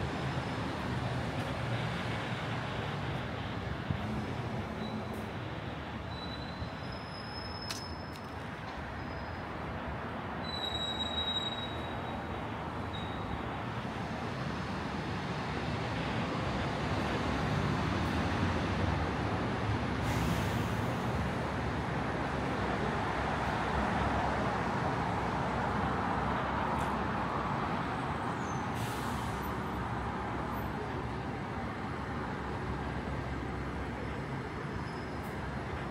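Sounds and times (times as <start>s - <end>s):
traffic rumble of engines and tyres: 0.0s - 35.9s
short hisses: 28.8s - 29.4s.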